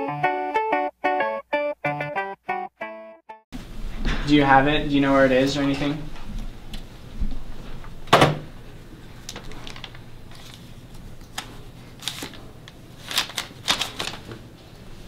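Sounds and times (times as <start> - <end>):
paper sheets rustling: 9.4 - 15.0.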